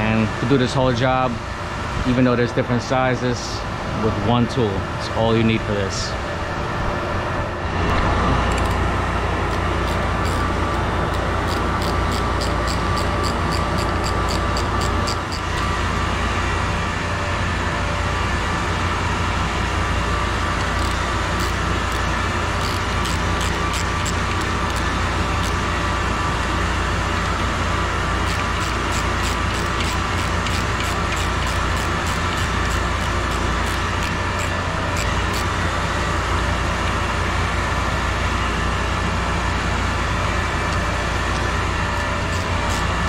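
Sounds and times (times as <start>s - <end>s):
water pumps humming: 6.1s - 43.0s
ratchet wrench clicking: 8.5s - 8.8s, 9.5s - 15.6s, 20.6s - 25.6s, 28.2s - 35.5s, 41.9s - 43.0s.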